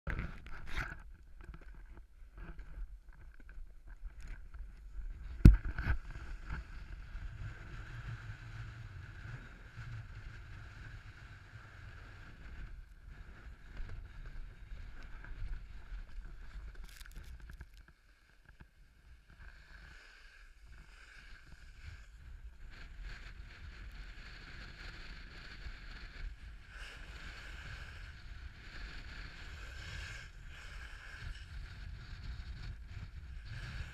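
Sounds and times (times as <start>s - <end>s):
snowboard scraping over snow: 19.2s - 33.9s.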